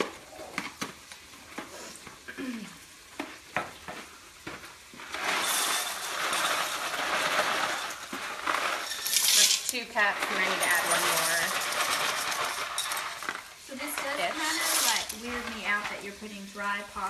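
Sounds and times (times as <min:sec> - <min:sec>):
dry pasta pouring onto glass: 0:05.0 - 0:17.0.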